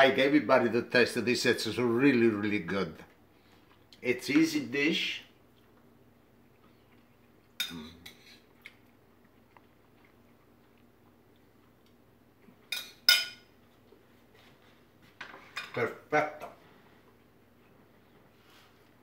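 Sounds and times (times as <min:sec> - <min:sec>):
fork clinking on ceramic bowl: 0:12.7 - 0:13.5.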